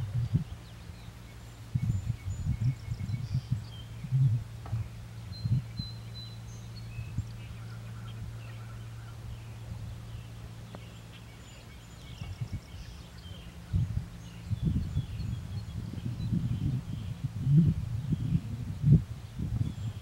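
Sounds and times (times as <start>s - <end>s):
birds chirping faintly: 0.0s - 20.0s
steady low hum: 0.0s - 20.0s
low thumps: 2.5s - 5.7s.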